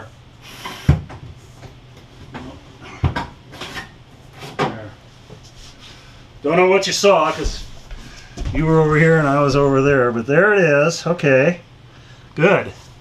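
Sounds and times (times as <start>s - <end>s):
rustling and scraping on wood: 7.2s - 9.3s.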